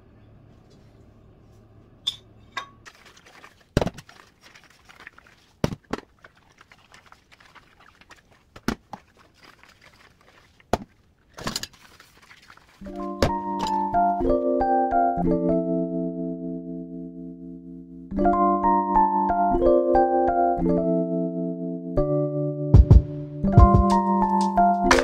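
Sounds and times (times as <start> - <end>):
piano music: 12.8 - 25.0.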